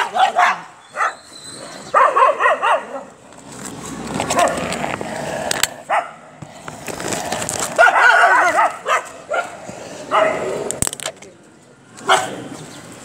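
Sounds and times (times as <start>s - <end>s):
dogs barking and yipping: 0.0s - 3.2s, 4.2s - 4.8s, 5.8s - 6.3s, 7.6s - 10.6s, 12.0s - 12.4s
dog whining: 0.8s - 2.3s.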